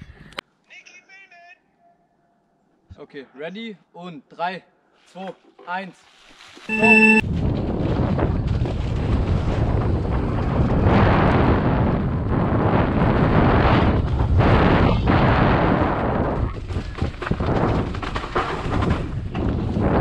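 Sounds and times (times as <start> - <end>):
wind rushing over microphone: 7.2 - 18.0
bike rattling and knocking: 16.2 - 19.9.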